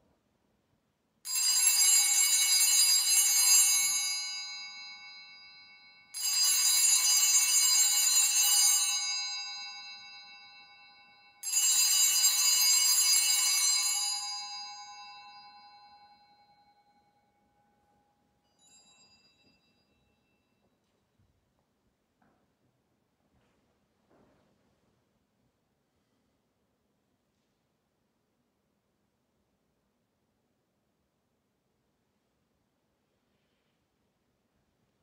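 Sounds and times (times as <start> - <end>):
altar bells ringing: 1.3 - 20.9.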